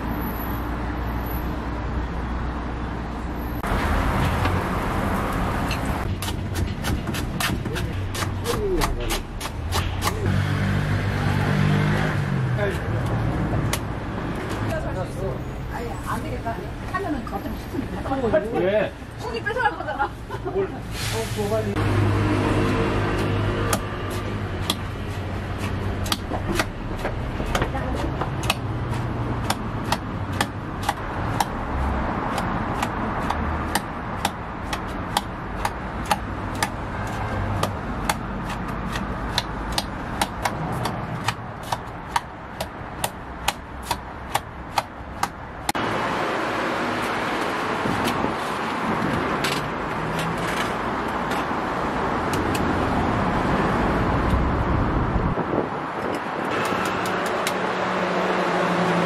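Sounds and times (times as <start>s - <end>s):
street background hiss: 0.0s - 59.0s.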